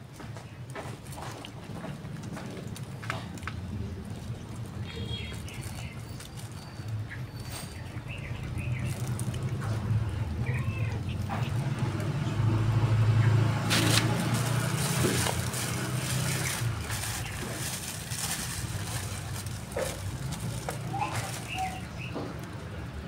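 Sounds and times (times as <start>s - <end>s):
vehicle engine passing by: 7.5s - 23.0s.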